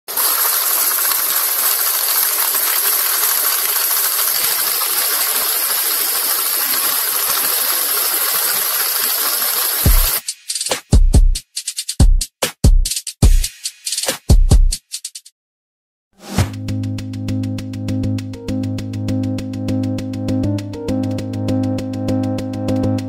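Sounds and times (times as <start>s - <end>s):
loud steady hiss: 0.1s - 10.6s.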